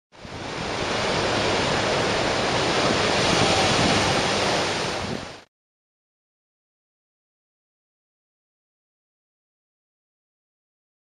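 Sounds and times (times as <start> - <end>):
surf breaking against rocks: 0.2 - 5.5.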